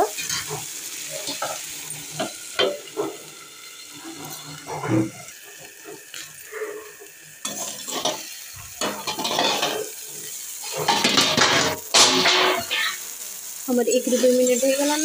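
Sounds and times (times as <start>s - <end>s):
vegetables sizzling in frying pan: 0.0s - 15.0s
metal plate clattering and scraping: 8.8s - 9.9s, 10.7s - 12.9s.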